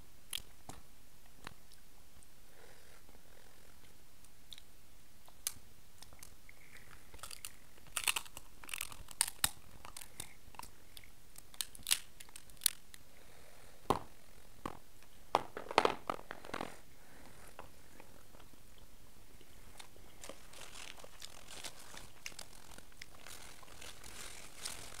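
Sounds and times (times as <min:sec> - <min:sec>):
crab shell cracking: 0:05.4 - 0:13.0.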